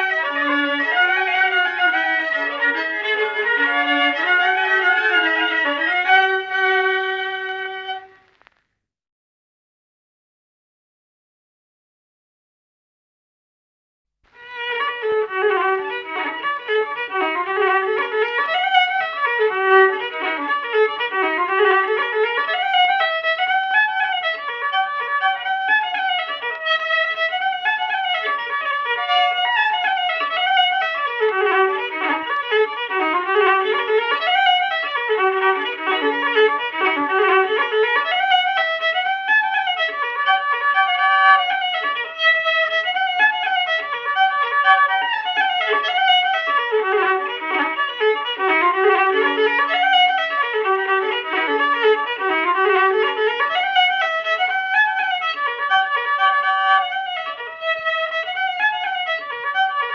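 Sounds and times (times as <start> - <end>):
fiddle playing dance tune: 0.0 - 8.6, 14.3 - 59.9.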